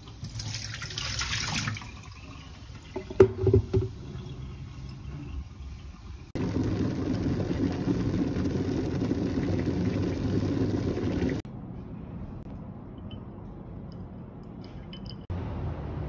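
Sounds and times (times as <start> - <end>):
electric kettle boiling: 2.0 - 11.4
faint light clinks: 12.9 - 15.3.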